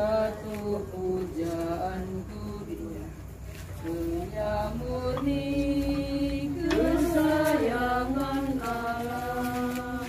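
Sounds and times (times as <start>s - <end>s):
group singing a slow hymn: 0.0s - 10.0s.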